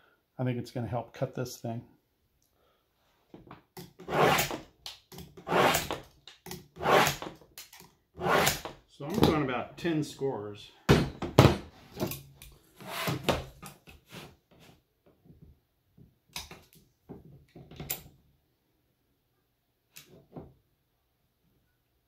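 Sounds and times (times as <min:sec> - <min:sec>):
locking pliers clamping tile: 0:04.8 - 0:05.4, 0:07.6 - 0:08.0
tile scraping across tabletop: 0:14.0 - 0:14.8.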